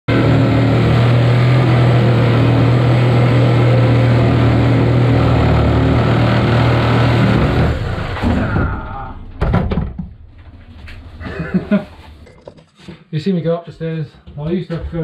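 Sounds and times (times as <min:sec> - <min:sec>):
jigsaw cutting: 0:00.2 - 0:08.2.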